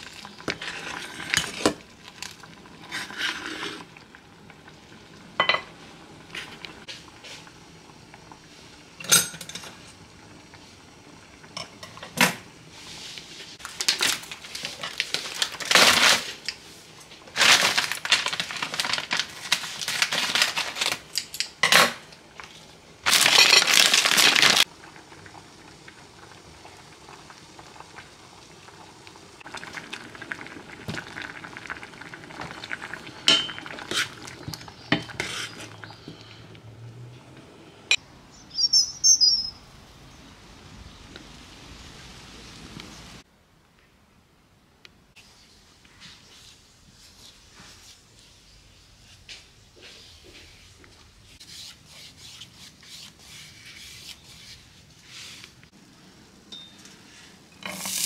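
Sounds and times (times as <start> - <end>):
utensils and dishes clinking: 9.0 - 9.8, 23.1 - 24.6, 56.5 - 58.0
plastic packet rustling: 13.6 - 16.4, 17.2 - 21.1, 23.0 - 24.6.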